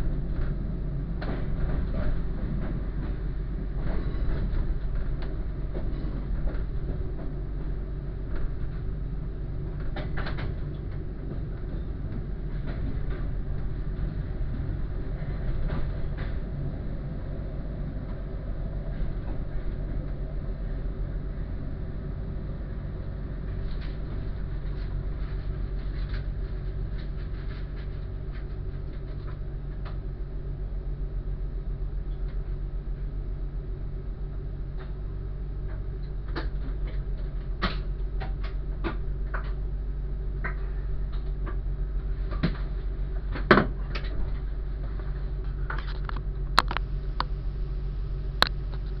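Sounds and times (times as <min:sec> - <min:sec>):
train engine droning: 0:00.0 - 0:49.0
clicks and creaks: 0:45.4 - 0:47.3.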